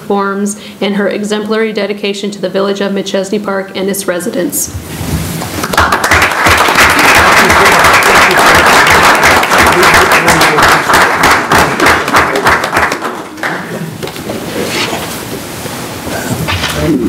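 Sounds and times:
crowd applause: 0:05.6 - 0:13.8.

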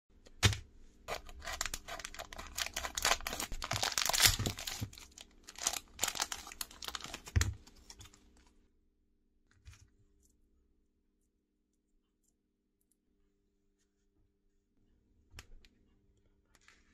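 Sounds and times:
plastic packet crinkling: 0:01.1 - 0:08.4.

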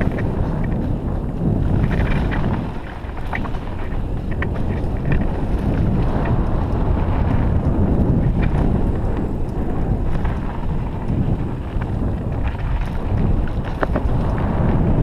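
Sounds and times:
bike rattles and clicks: 0:00.0 - 0:15.0
wind buffeting microphone: 0:00.0 - 0:15.0.

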